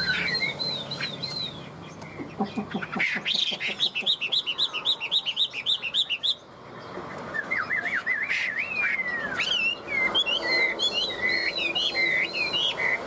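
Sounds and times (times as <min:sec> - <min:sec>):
bird whistling song: 0:00.0 - 0:06.4, 0:07.3 - 0:13.0.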